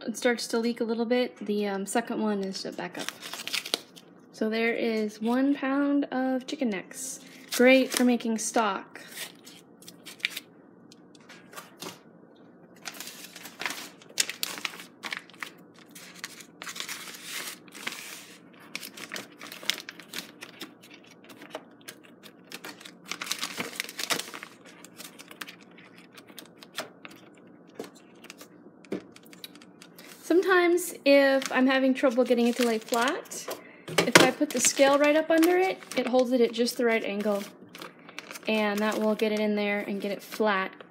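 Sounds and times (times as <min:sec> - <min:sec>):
plastic bag crinkling: 0:02.8 - 0:04.0, 0:12.8 - 0:30.4, 0:31.0 - 0:40.9.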